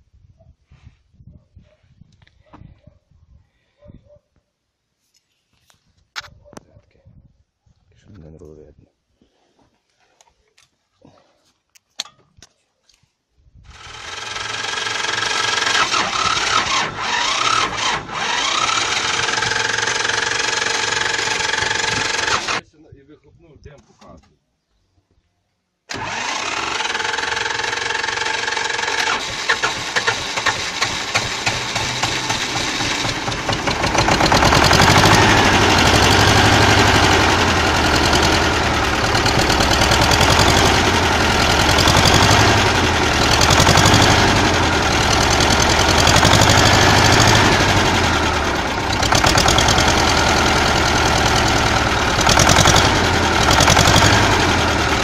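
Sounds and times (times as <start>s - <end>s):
starter motor whining: 13.7s - 22.6s, 25.9s - 55.0s
tractor engine running: 13.7s - 22.6s, 25.9s - 55.0s
diesel engine firing with knocks: 13.8s - 22.6s, 25.9s - 55.0s.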